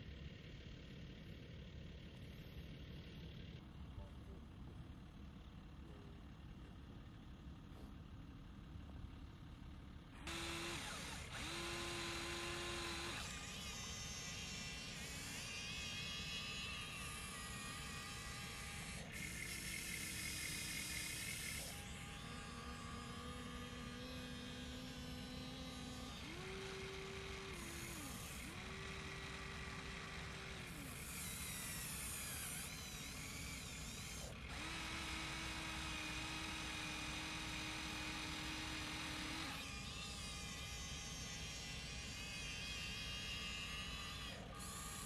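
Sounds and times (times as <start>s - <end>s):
small electric motors whining: 10.2s - 45.0s.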